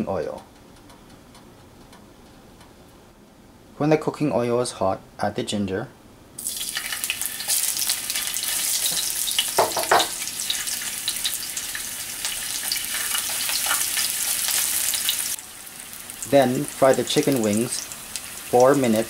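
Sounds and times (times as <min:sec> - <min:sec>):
ginger sizzling in oil: 0:06.4 - 0:19.0.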